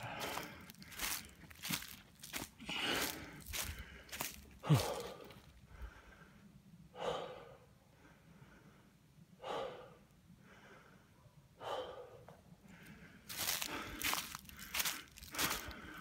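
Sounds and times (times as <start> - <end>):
footsteps crunching dry leaves: 0.0 - 5.4, 13.3 - 16.0
man breathing hard: 0.0 - 16.0.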